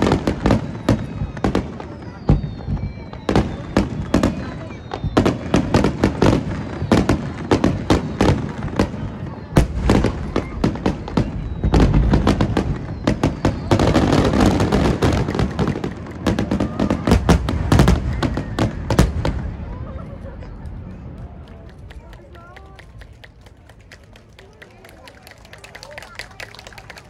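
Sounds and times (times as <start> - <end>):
deep firework booms: 0.0 - 19.8
firework bangs and crackles: 0.0 - 27.0.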